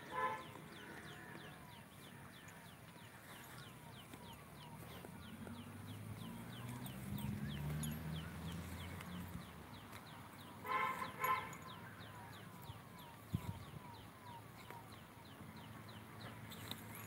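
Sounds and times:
farm animal calls: 0:00.0 - 0:09.3.

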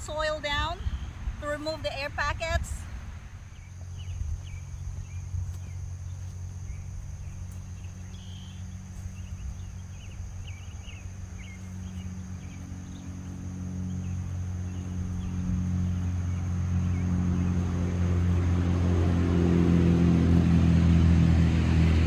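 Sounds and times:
low steady hum: 0:00.0 - 0:22.0
high insect drone: 0:03.2 - 0:21.9
short insect chirps: 0:03.5 - 0:17.6.

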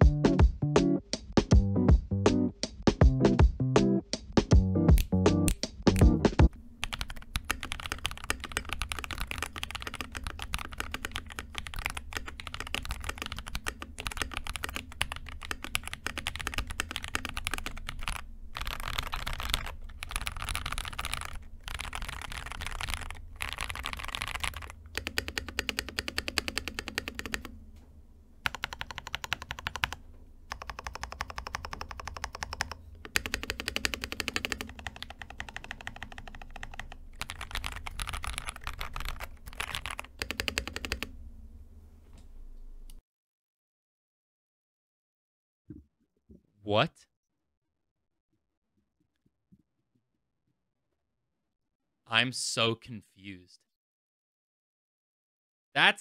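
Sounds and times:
mechanical keyboard typing: 0:06.8 - 0:27.5, 0:28.4 - 0:41.1.

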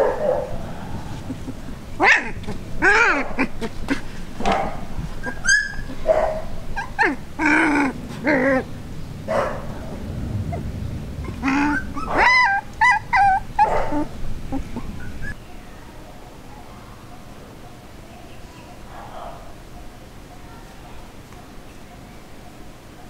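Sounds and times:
puppies yipping and whining: 0:00.0 - 0:15.4.

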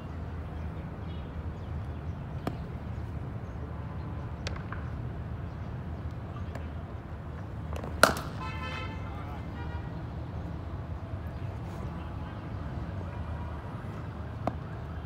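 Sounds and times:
cricket bat striking ball: 0:04.4 - 0:05.0, 0:07.8 - 0:08.5.

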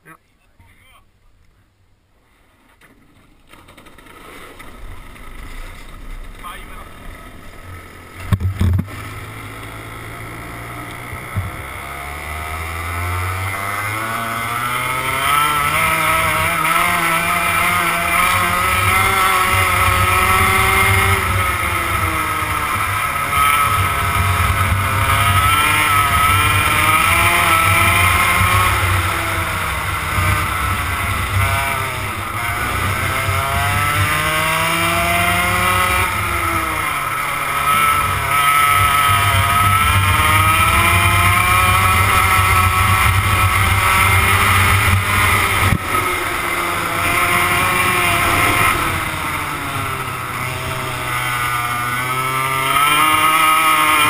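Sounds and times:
go-kart engine revving: 0:03.1 - 0:54.0.

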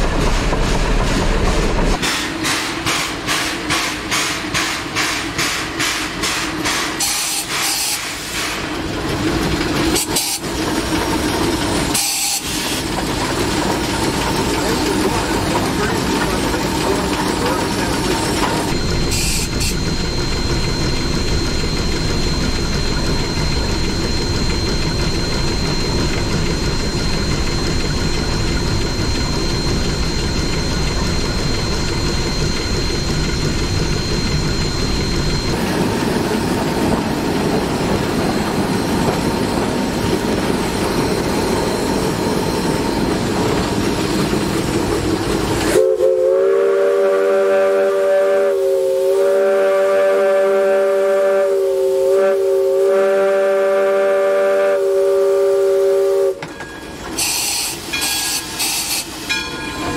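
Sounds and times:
steam locomotive rumbling: 0:00.0 - 0:59.9.

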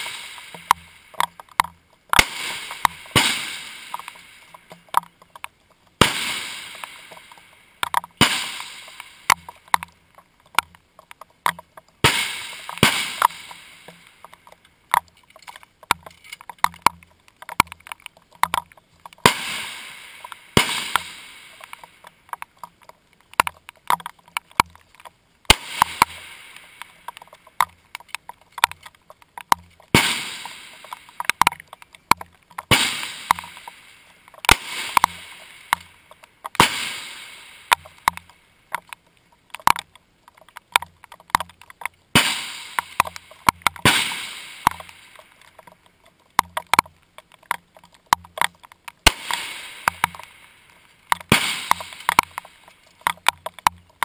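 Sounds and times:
soft clicks and knocks: 0:00.0 - 0:03.2, 0:03.8 - 0:06.0, 0:06.7 - 0:19.3, 0:20.2 - 0:36.6, 0:37.6 - 0:42.1, 0:42.7 - 0:44.0, 0:44.6 - 0:54.0
rifle shots echoing: 0:02.2 - 0:04.4, 0:06.0 - 0:07.3, 0:08.2 - 0:09.4, 0:12.0 - 0:13.9, 0:19.2 - 0:21.8, 0:25.5 - 0:26.8, 0:29.9 - 0:31.0, 0:32.7 - 0:33.7, 0:34.4 - 0:35.7, 0:36.6 - 0:37.7, 0:43.8 - 0:45.2, 0:49.1 - 0:50.3, 0:51.3 - 0:52.2.

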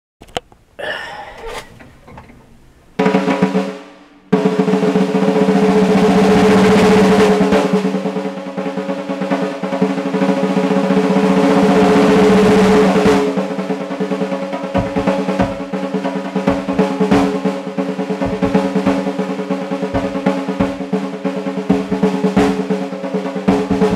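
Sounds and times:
faint knocks: 0:00.2 - 0:04.2
drum roll: 0:00.8 - 0:23.9.

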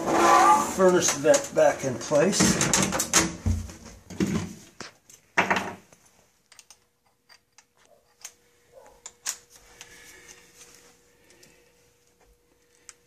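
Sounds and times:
metal pipe scraping and clunking: 0:00.0 - 0:01.8.

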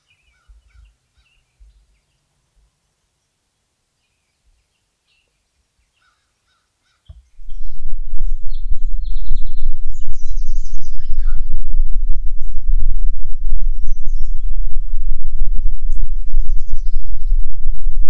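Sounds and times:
birds chirping: 0:00.0 - 0:03.4, 0:04.0 - 0:18.0
wind buffeting microphone: 0:07.3 - 0:18.0.

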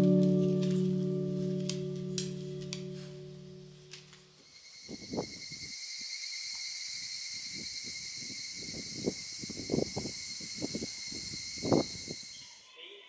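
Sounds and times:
insects singing: 0:04.3 - 0:13.0.

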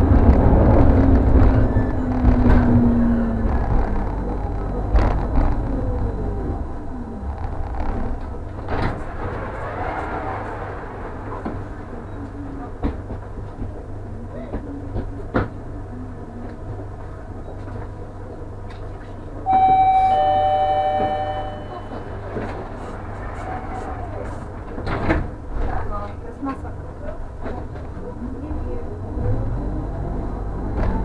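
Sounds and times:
tram humming: 0:00.0 - 0:31.0
passengers' footsteps: 0:11.3 - 0:15.8
two-tone door chime: 0:19.5 - 0:22.4.

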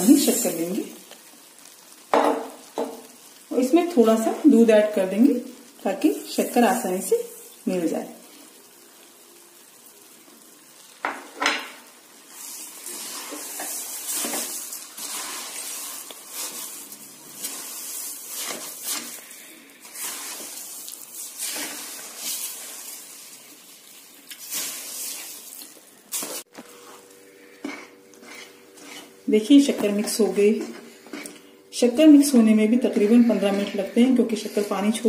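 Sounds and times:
ghee sizzling: 0:00.0 - 0:35.0
spatula scraping metal pan: 0:17.4 - 0:19.2, 0:27.6 - 0:29.2.

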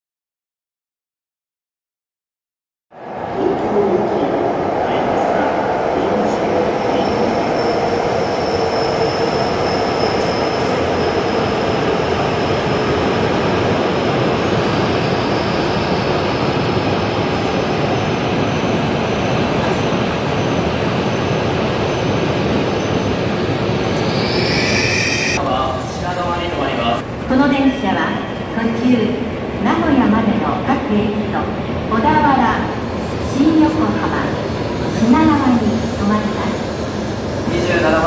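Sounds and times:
train rushing past: 0:03.0 - 0:29.8
thin high whine: 0:23.7 - 0:25.5.

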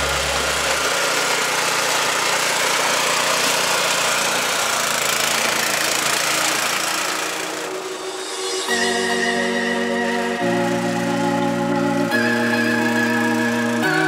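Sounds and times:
small engine rattling: 0:00.0 - 0:08.0.

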